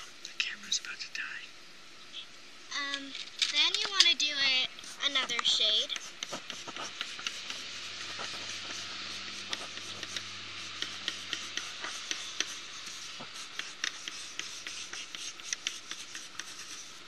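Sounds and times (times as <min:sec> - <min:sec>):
pencil scratching on paper: 0:04.6 - 0:17.0.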